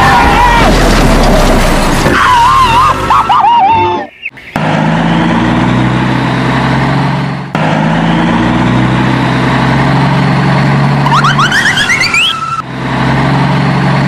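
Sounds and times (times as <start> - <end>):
vehicle engine humming: 0.0 - 14.0
rising siren whoops: 11.0 - 12.6.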